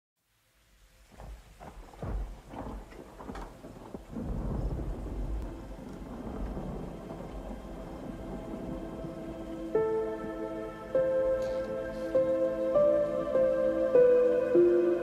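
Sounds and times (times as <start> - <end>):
rain hiss: 3.1 - 15.0
thunder cracks and rumble: 3.2 - 10.4.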